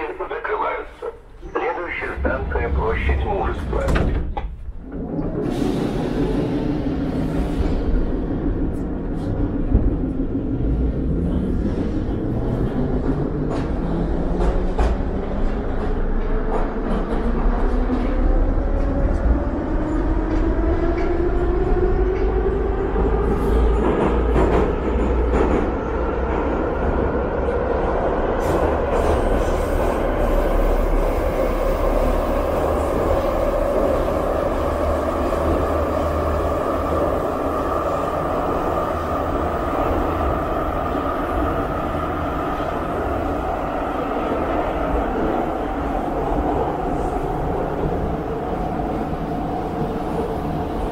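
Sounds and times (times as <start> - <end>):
wheels rumbling on rail: 0.0 - 50.9.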